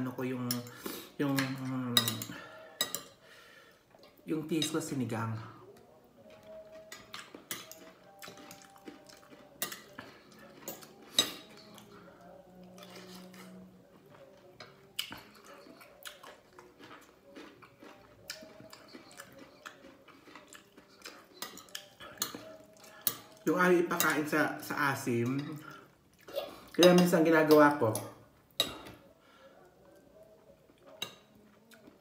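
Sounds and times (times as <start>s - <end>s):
cutlery clinking on ceramic plate: 1.4s - 3.2s, 6.4s - 11.9s, 17.8s - 24.3s, 26.8s - 29.0s, 30.8s - 31.4s.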